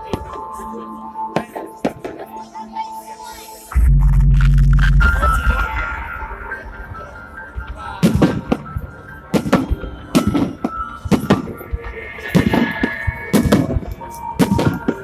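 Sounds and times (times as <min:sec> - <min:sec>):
fireworks bangs: 0:12.2 - 0:15.0.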